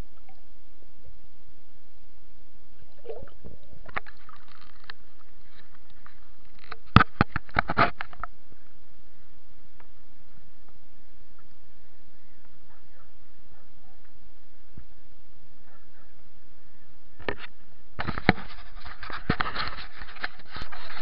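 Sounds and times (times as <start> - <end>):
water splashing: 2.8 - 7.5.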